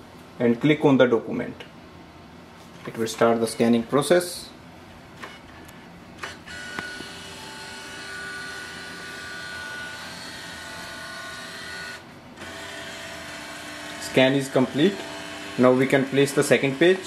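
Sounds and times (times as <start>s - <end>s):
scanner motor whirring: 6.2s - 17.0s.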